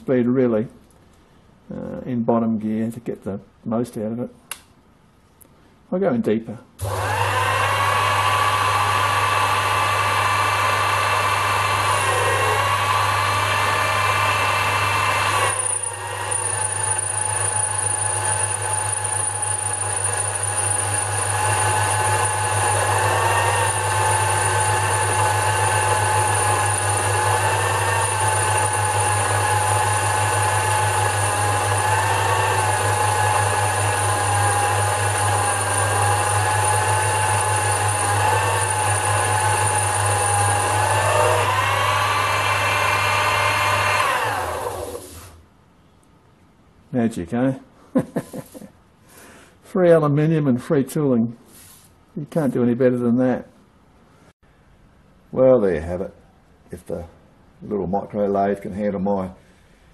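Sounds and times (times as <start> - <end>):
lathe motor whine: 6.8 - 45.4.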